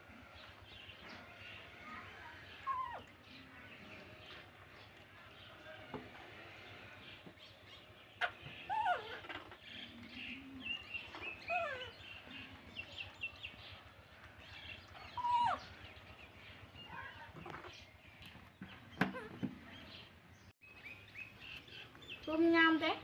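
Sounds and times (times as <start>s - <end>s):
high animal calls: 8.2s - 12.7s, 15.0s - 15.8s.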